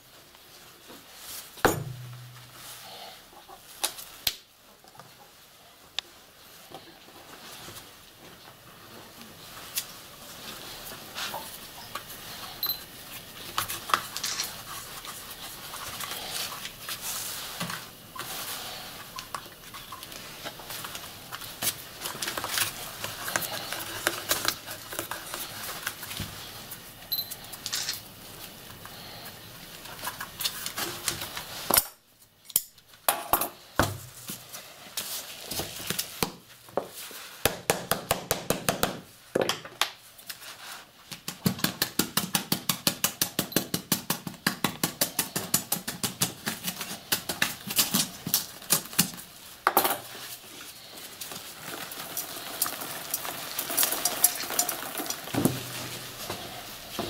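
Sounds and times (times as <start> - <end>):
paper rustling: 8.6 - 31.7.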